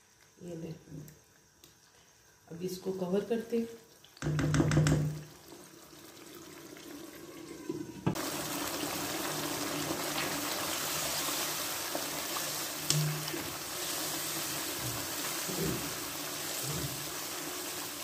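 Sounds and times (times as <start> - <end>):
gravy sizzling and bubbling: 3.7 - 18.0.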